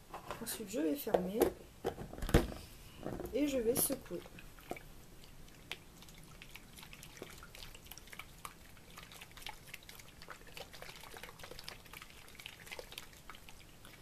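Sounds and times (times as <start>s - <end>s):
liquid sloshing in plastic tub: 2.1s - 14.0s.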